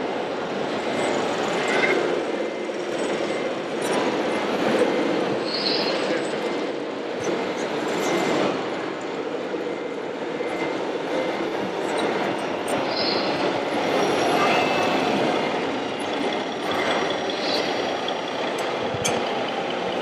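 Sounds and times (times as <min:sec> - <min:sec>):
machinery rumble: 0:00.0 - 0:20.0
crowd noise: 0:11.2 - 0:20.0.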